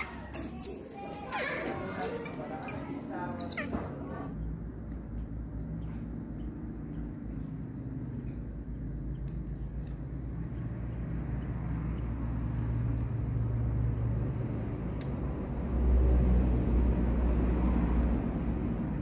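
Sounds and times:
vehicle engine running: 4.3s - 19.0s.

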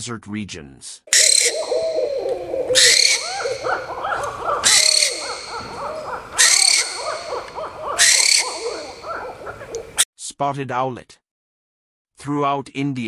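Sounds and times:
owl screeching: 1.1s - 10.0s.

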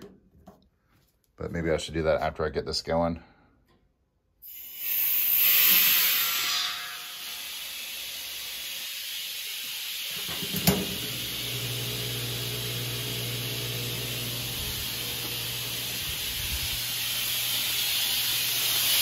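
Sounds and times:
compressed air hissing: 4.4s - 6.2s, 7.3s - 19.0s
electric hum: 10.3s - 19.0s.

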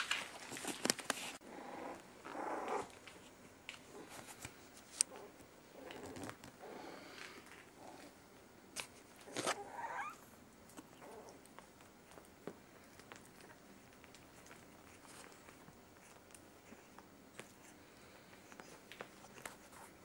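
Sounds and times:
puppies whining and growling: 1.4s - 3.0s, 9.2s - 11.6s.

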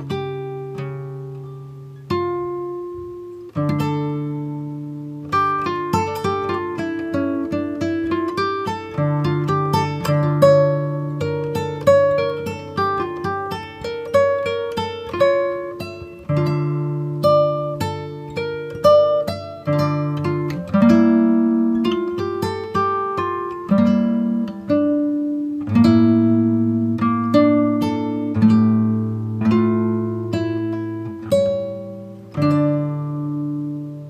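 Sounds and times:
plucked acoustic guitar: 0.0s - 34.0s.

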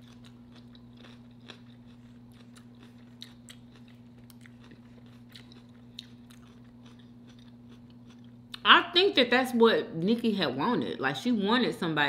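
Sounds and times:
chewing crunchy food: 0.0s - 8.7s
steady low hum: 0.0s - 12.0s.

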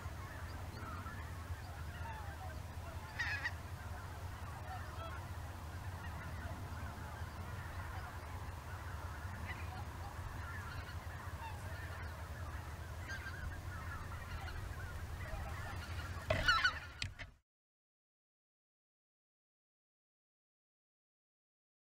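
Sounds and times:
geese calling in flight: 0.0s - 17.3s.

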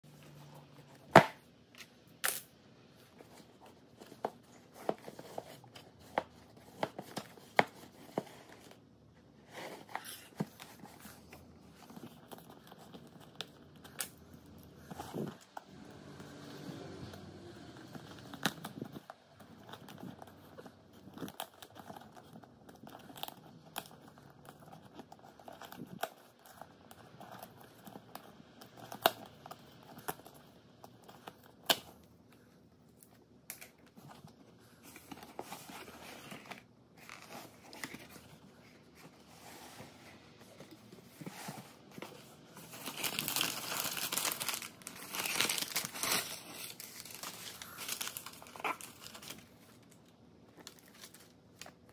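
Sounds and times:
packing paper crinkling: 33.8s - 51.9s.

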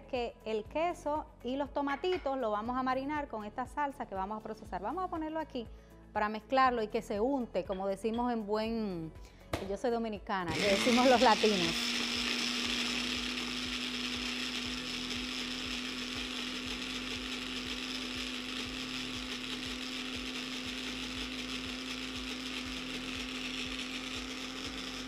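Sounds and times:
food processor motor whirring: 10.5s - 25.0s.

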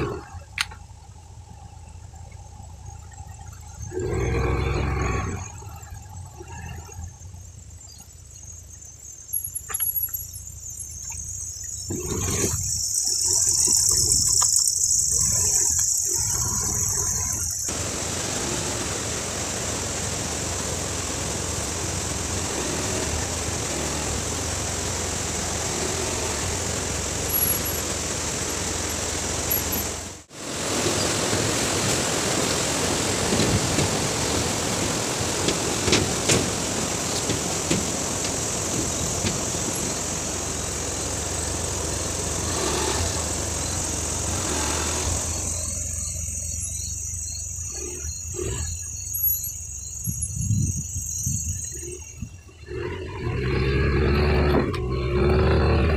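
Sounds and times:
motorbike engine hum: 11.7s - 48.8s, 52.6s - 55.9s
rush of wind and road noise: 15.2s - 46.4s.

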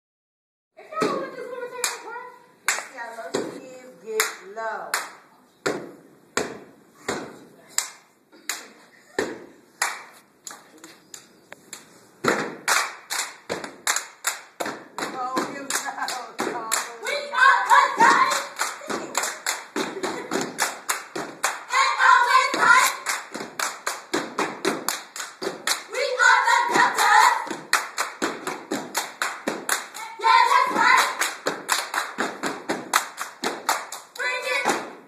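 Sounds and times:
hand claps: 11.2s - 17.0s, 18.0s - 21.7s, 30.7s - 34.9s
group calling out together: 17.0s - 18.5s.

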